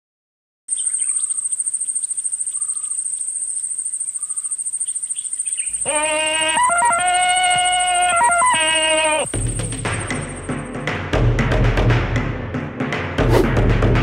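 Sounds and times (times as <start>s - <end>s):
faint bird chirps: 0.7s - 10.6s
insect trill: 0.7s - 10.8s
yodelling jungle yell: 5.8s - 9.4s.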